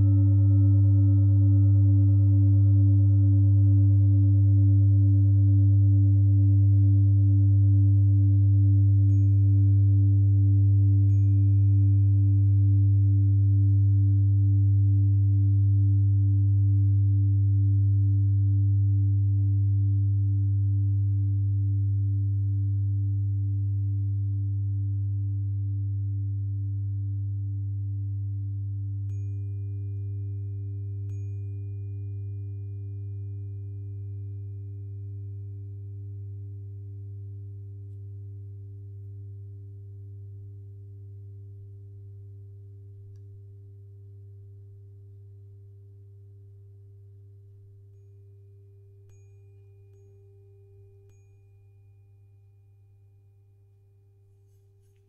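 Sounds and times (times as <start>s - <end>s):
singing bowl ringing: 0.0s - 8.3s, 9.0s - 15.8s, 29.1s - 41.5s, 47.8s - 53.3s
deep steady tone: 0.0s - 52.6s
tuning fork pure tone: 0.0s - 55.0s
tuning fork struck ticks: 9.0s - 13.0s, 29.0s - 34.4s, 43.1s - 43.5s, 47.9s - 51.9s.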